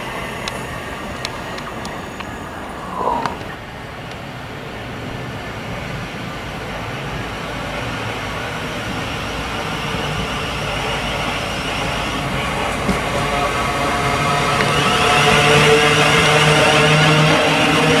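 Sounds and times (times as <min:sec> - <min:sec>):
faint train whine: 0:00.0 - 0:18.0
train running on rails: 0:00.0 - 0:18.0.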